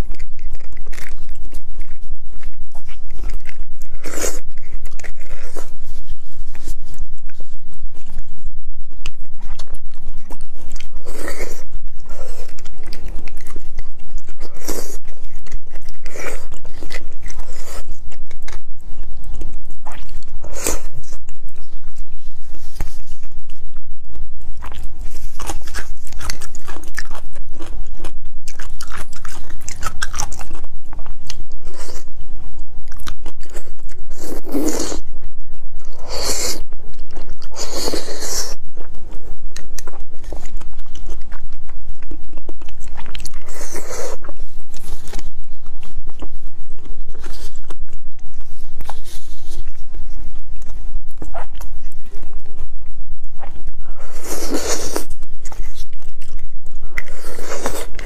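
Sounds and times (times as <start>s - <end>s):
chewing and wet mouth sounds: 0.0s - 58.0s
steady low hum: 0.0s - 58.0s.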